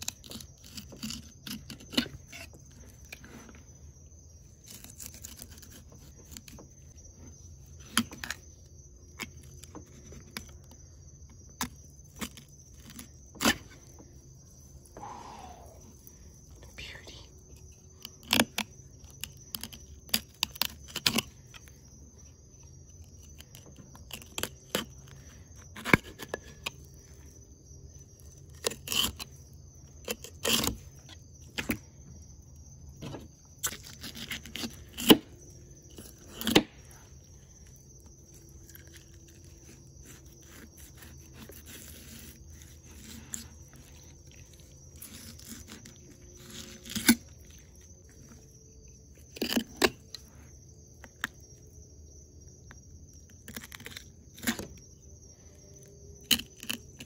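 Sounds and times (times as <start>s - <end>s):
knife scraping fish bones: 0.0s - 3.5s, 4.6s - 6.7s, 28.5s - 29.3s, 30.0s - 31.7s, 38.3s - 47.3s.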